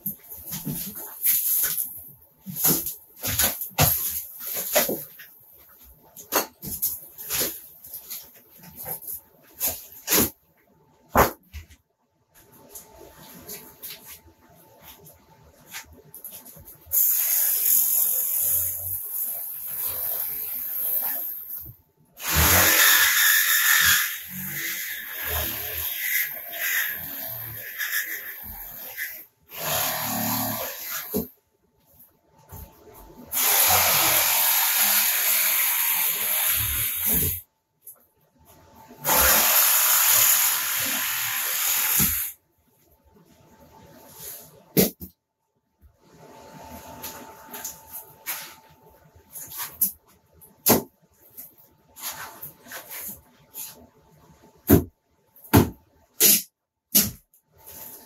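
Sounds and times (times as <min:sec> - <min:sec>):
reciprocating saw cutting ceiling: 0:16.9 - 0:21.5, 0:22.2 - 0:31.3, 0:33.3 - 0:37.4, 0:39.0 - 0:42.4
reciprocating saw cutting: 0:39.0 - 0:42.4.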